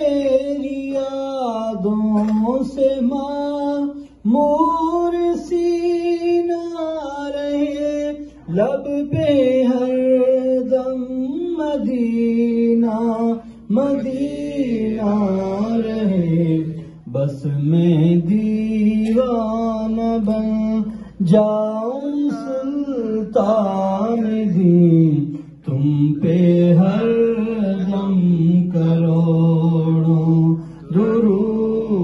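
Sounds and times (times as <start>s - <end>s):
man singing into a microphone: 0.0s - 32.0s.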